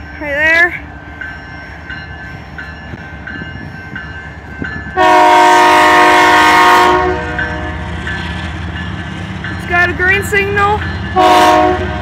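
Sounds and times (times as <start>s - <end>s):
train rumble: 0.0s - 12.0s
locomotive air horn blast: 5.0s - 7.8s, 11.2s - 12.0s.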